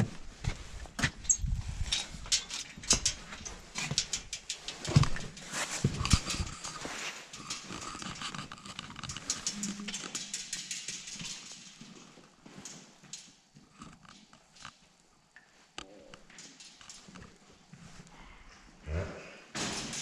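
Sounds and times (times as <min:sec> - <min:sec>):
handling knocks and clicks: 0:00.0 - 0:15.1.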